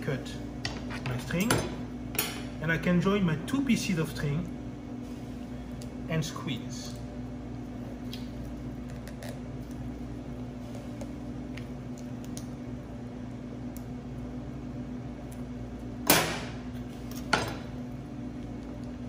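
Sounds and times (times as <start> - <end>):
kitchen equipment humming: 0.0 - 19.0.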